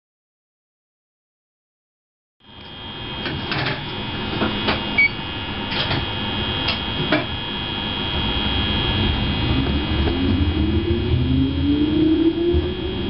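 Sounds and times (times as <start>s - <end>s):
train equipment hum and whine: 2.4s - 13.0s
short beep: 5.0s - 5.2s.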